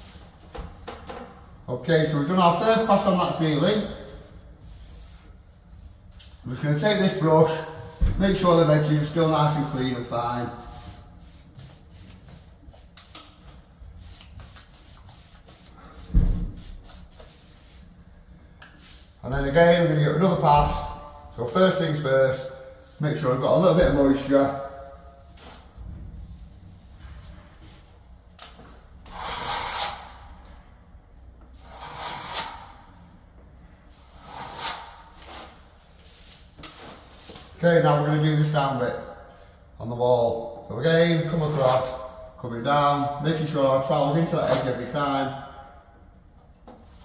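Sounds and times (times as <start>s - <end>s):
paintbrush swishing: 4.0s - 5.8s, 7.4s - 13.1s, 13.9s - 18.0s
trowel scraping wall: 29.0s - 30.2s, 31.6s - 32.8s, 34.0s - 35.7s, 41.2s - 42.0s.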